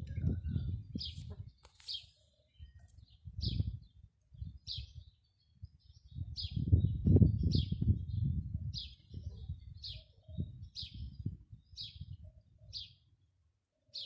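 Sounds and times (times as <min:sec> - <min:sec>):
low gusty rumble: 0:00.0 - 0:01.1, 0:06.1 - 0:09.8.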